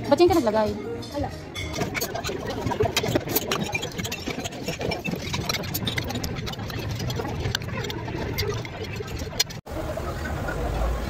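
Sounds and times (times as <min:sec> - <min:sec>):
clicks and rattles: 0:01.6 - 0:09.6.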